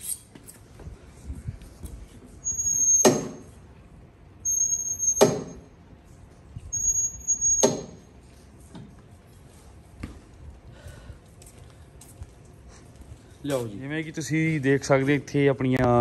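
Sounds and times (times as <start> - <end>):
exercise machine squeaking: 0.0 - 0.4, 2.4 - 3.5, 4.4 - 5.6, 6.7 - 8.0.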